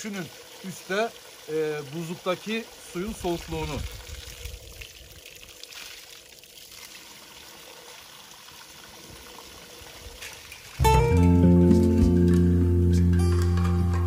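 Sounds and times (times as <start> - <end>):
mountain stream running over rocks: 0.0 - 10.9
guitar music: 10.8 - 14.0.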